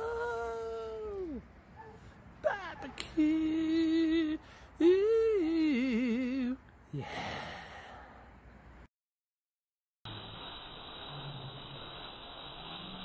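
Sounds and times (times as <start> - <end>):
wordless howling voice: 0.0 - 1.5, 2.4 - 7.2
faint hiss: 10.1 - 13.0.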